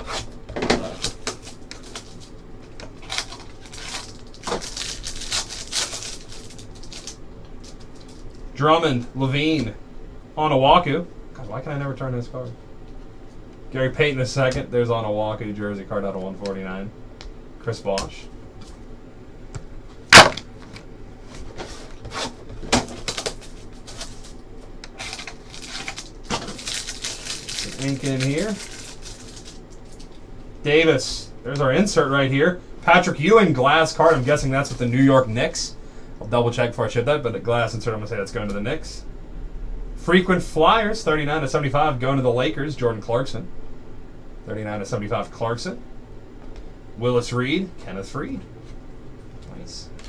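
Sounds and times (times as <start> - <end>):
card pack wrapper crinkling: 0.8 - 8.4, 21.7 - 30.2.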